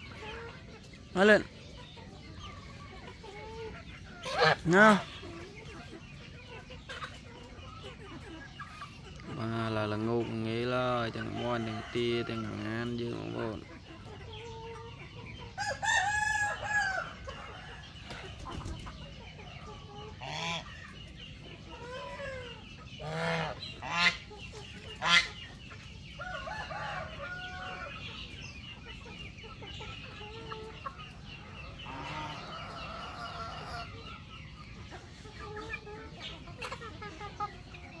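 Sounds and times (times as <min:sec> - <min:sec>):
chicken squawks: 0:00.0 - 0:09.1, 0:21.6 - 0:25.6, 0:31.8 - 0:34.0
chickens clucking: 0:00.0 - 0:38.0.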